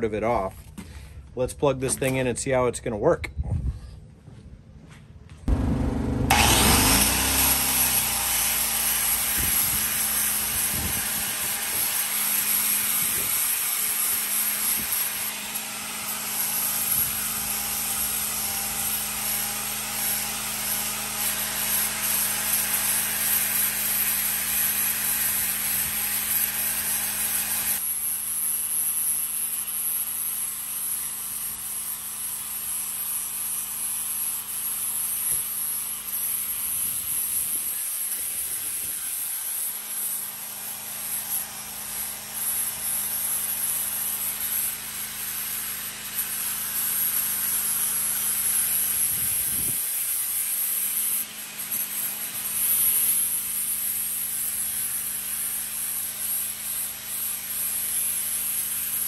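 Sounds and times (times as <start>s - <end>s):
angle grinder motor hum: 5.5s - 27.8s.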